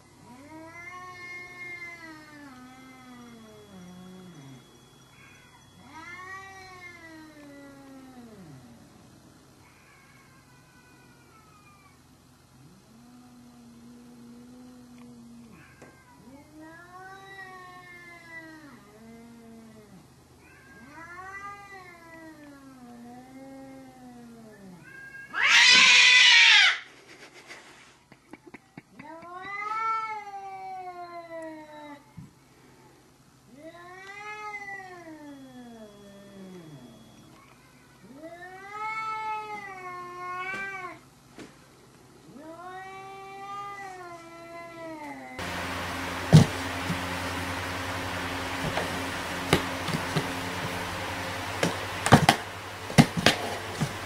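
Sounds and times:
cats yowling: 0:00.2 - 0:08.8, 0:09.6 - 0:12.1, 0:15.3 - 0:26.9, 0:28.5 - 0:32.1, 0:33.5 - 0:41.0, 0:42.2 - 0:45.7
cat screeching: 0:24.8 - 0:26.9
steady low hum: 0:45.4 - 0:54.0
cat knocking in cardboard box: 0:51.6 - 0:54.0.

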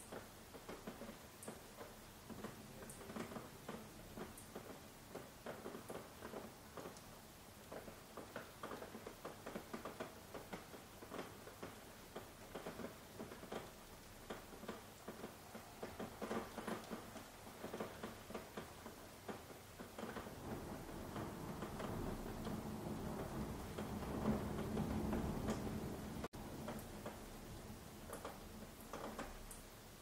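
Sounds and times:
raindrops pattering on hard surface: 0:00.0 - 0:30.0
soft hiss: 0:00.0 - 0:30.0
low steady rushing: 0:20.3 - 0:26.3.

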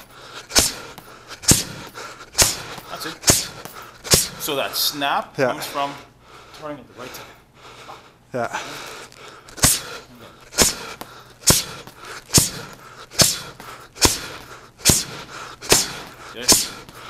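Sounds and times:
sharp exhaled hiss: 0:00.0 - 0:04.4, 0:09.6 - 0:17.0
punches smacking leather mitts: 0:00.0 - 0:04.5, 0:09.5 - 0:17.0.

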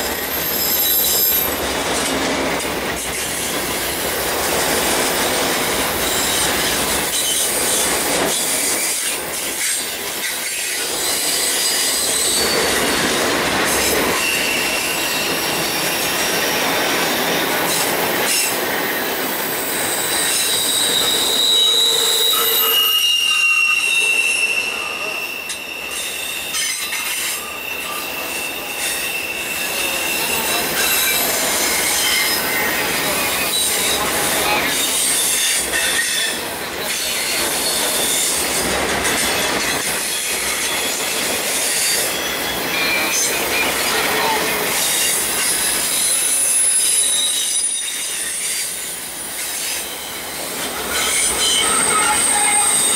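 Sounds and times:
train wheels rumbling on rails: 0:00.0 - 0:52.9
wheel flanges squealing: 0:19.4 - 0:38.4, 0:49.4 - 0:52.9.

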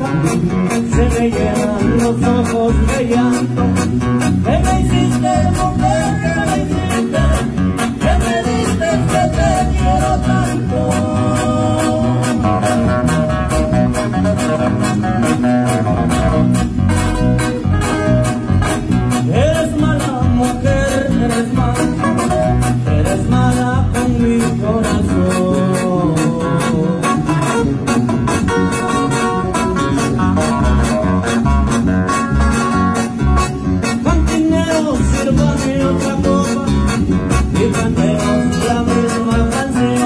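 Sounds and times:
person singing: 0:00.0 - 0:13.0, 0:19.1 - 0:27.6, 0:33.9 - 0:40.0
acoustic guitars: 0:00.0 - 0:40.0.

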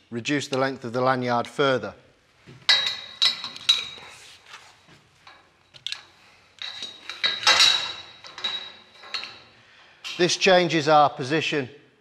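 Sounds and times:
metallic clatter with ringing: 0:02.7 - 0:04.0, 0:06.6 - 0:09.5
metal hooks clicking on tubes: 0:02.7 - 0:04.1, 0:05.2 - 0:10.4.

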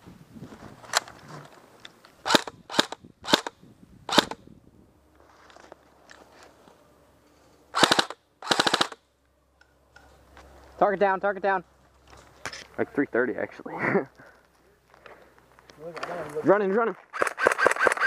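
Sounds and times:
airsoft rifle shots: 0:02.2 - 0:04.4, 0:07.8 - 0:09.0, 0:17.1 - 0:18.0.

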